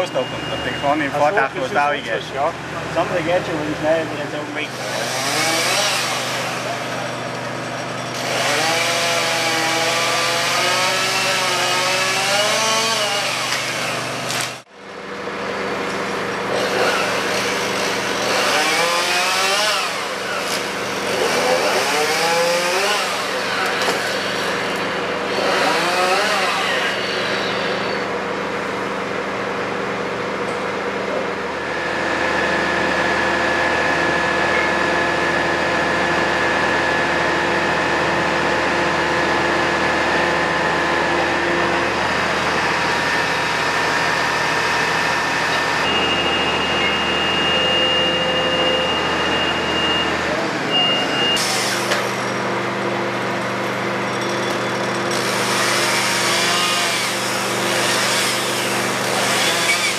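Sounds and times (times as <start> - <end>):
chainsaw revving: 4.7 - 6.9, 8.2 - 14.6, 16.5 - 28.0, 55.0 - 59.9
steady whine: 26.6 - 53.1
truck engine running: 27.2 - 55.9.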